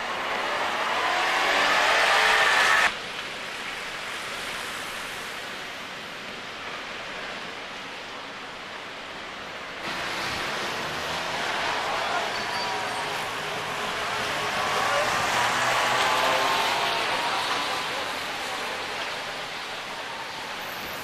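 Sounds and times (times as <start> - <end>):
passing vehicle engine: 0.0 - 2.9, 9.8 - 20.2
street background hiss: 0.0 - 21.0.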